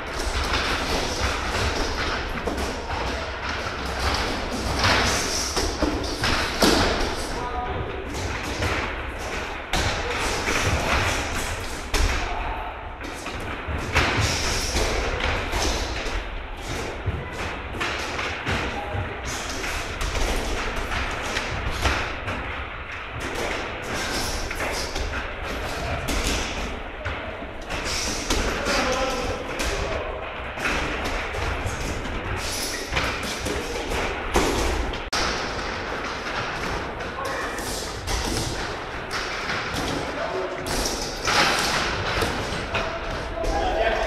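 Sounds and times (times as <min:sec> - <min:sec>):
many people moving: 0:00.0 - 0:44.0.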